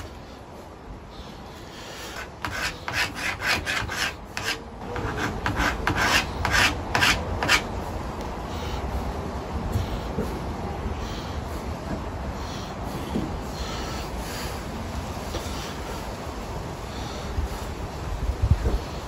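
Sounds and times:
pencil scratching on wood panel: 2.0s - 7.7s.

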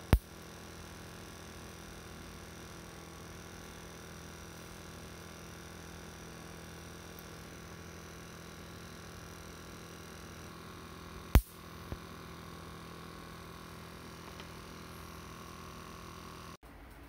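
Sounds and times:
faint steady hum: 0.0s - 17.0s
loud sharp snap: 11.3s - 11.6s.

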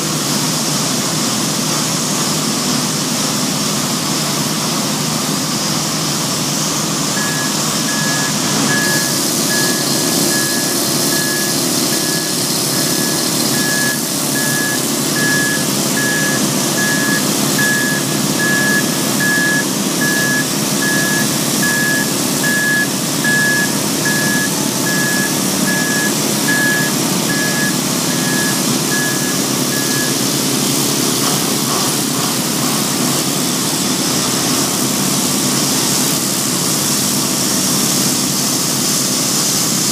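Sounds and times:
forklift diesel engine running: 0.0s - 39.9s
reverse alarm beeps: 7.1s - 30.2s.

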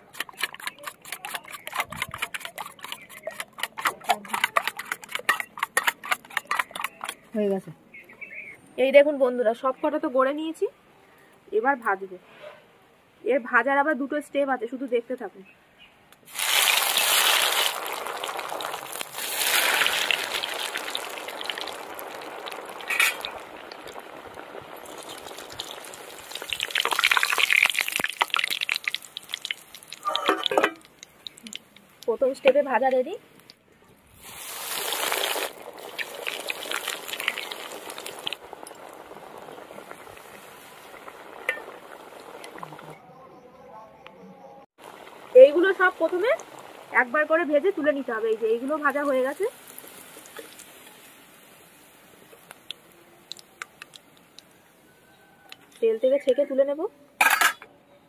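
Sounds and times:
food sizzling in hot oil: 16.3s - 32.8s, 34.2s - 43.0s, 44.8s - 54.4s.

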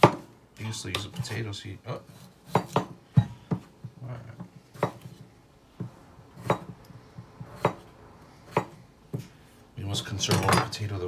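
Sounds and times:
knife chopping on plastic board: 0.0s - 0.3s, 2.5s - 5.2s, 5.8s - 6.8s, 7.4s - 7.9s, 8.5s - 9.3s.

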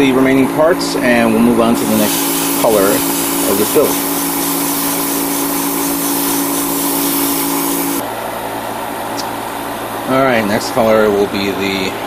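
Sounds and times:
exhaust fan humming: 0.0s - 12.0s
airy hiss: 1.8s - 8.0s.

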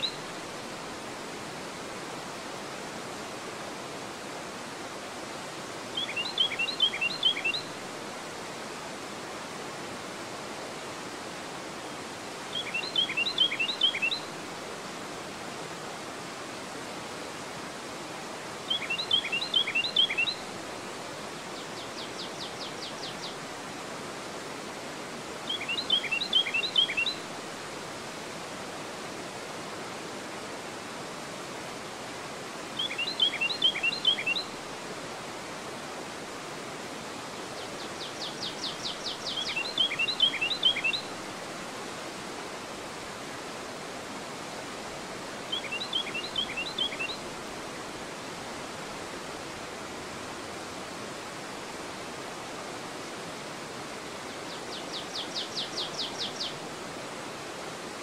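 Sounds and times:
river water rushing over weir: 0.0s - 58.0s
faint rapid bird trill: 5.9s - 7.7s, 12.5s - 14.3s, 18.6s - 20.5s, 25.4s - 27.2s, 32.8s - 34.6s, 37.5s - 41.1s, 45.4s - 47.2s, 54.3s - 56.6s
songbird whistling phrase: 6.0s - 7.6s, 12.6s - 14.3s, 25.5s - 27.2s, 32.8s - 34.4s, 38.2s - 41.1s.

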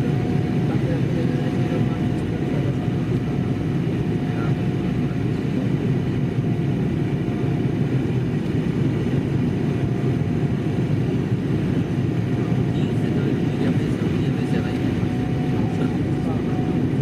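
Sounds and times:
airliner cabin rumble: 0.0s - 17.0s.

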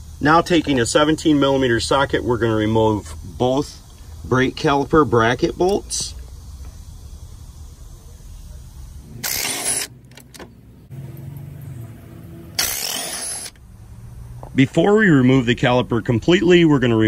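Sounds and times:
cordless impact wrench bursts: 9.2s - 10.4s, 12.5s - 13.6s.

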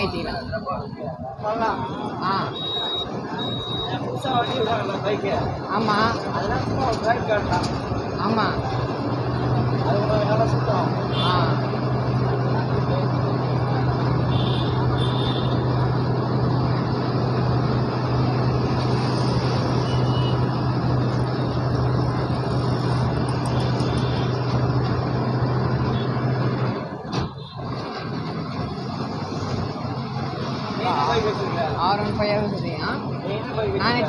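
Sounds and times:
wind and road noise: 0.0s - 34.0s
low engine hum: 2.2s - 34.0s.

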